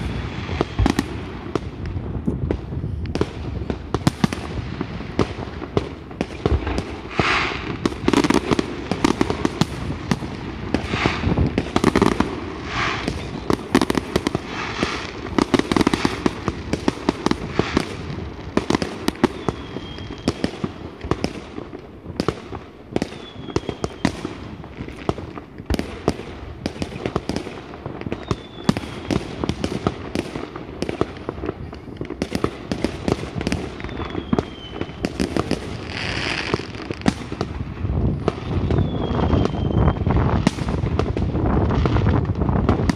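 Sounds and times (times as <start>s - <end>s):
falling firework whistle: 0.0s - 1.2s, 6.4s - 16.4s, 18.8s - 20.8s, 23.0s - 24.4s, 28.0s - 29.5s, 33.5s - 40.8s
fireworks bangs and crackling: 0.0s - 42.9s.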